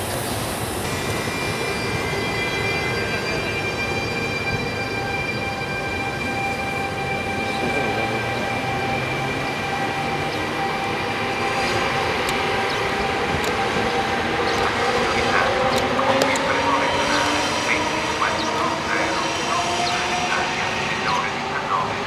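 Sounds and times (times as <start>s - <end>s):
electric locomotive whine: 0.0s - 22.0s.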